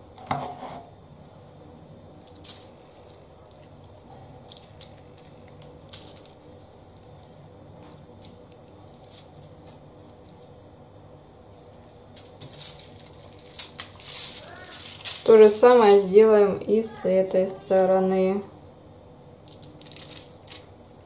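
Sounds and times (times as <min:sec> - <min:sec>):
foil rustling: 0:12.2 - 0:17.0, 0:19.4 - 0:20.7.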